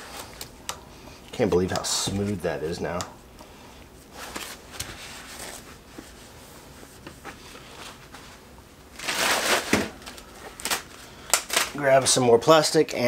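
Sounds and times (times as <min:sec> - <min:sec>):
plastic sheeting rustling: 0:07.7 - 0:11.8.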